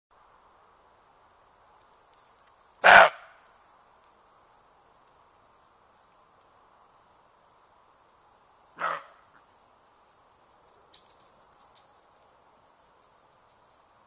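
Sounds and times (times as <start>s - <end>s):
deer barking: 2.8s - 3.4s, 8.8s - 9.2s.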